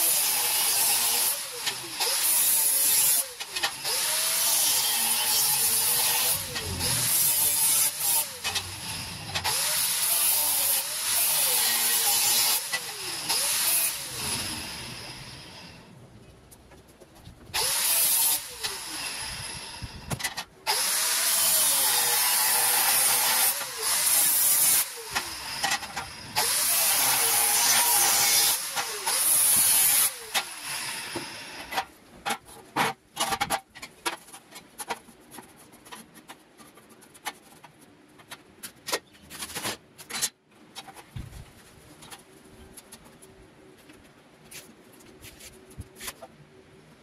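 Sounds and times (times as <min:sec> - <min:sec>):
angle grinder cutting steel: 0:00.0 - 0:15.8, 0:17.6 - 0:20.0, 0:20.7 - 0:31.8.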